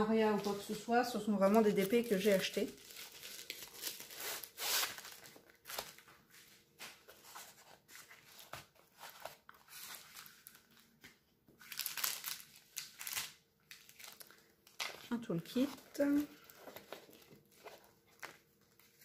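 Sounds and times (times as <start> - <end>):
paper and plastic crinkling: 0.1 - 19.0.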